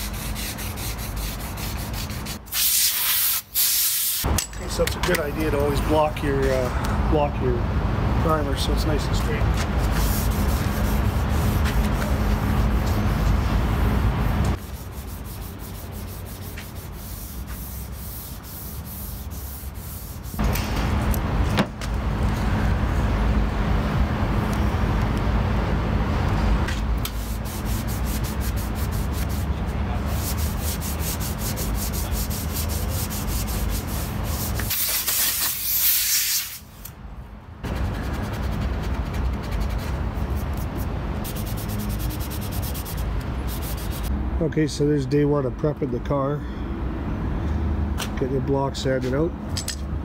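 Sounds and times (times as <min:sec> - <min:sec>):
sandpaper rasping on metal: 0:00.0 - 0:04.3, 0:09.7 - 0:13.4, 0:14.3 - 0:20.4, 0:27.1 - 0:36.6, 0:37.7 - 0:44.1
compressed air hiss: 0:02.4 - 0:04.3, 0:34.6 - 0:36.8.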